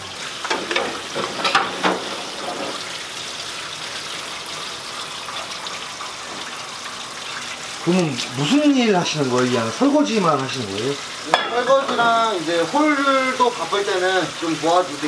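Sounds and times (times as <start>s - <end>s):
water running into sink: 0.0s - 15.0s
dishes clinking: 0.4s - 2.8s, 11.2s - 12.2s.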